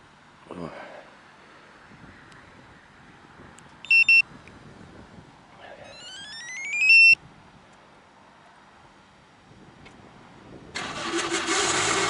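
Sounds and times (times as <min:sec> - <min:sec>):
short beeps: 0:03.8 - 0:04.2, 0:05.9 - 0:07.2
rising stepped tones: 0:05.9 - 0:07.2.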